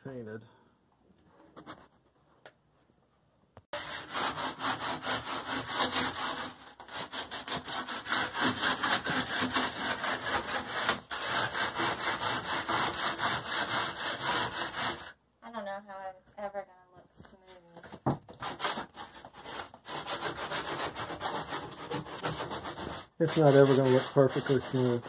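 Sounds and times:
sandpaper rubbing on ceiling: 3.8 - 15.2, 18.4 - 25.0.

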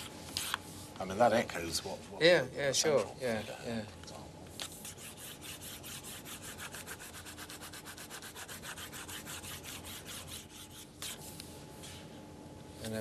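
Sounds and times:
stylus scrubbing on tablet: 4.6 - 11.3.

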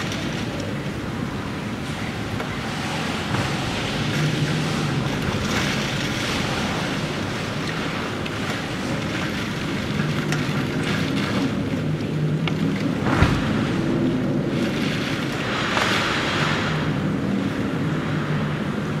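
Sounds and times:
heavy rain: 0.0 - 12.4, 13.1 - 19.0
strong wind: 0.0 - 19.0
wind buffeting microphone: 0.0 - 19.0.

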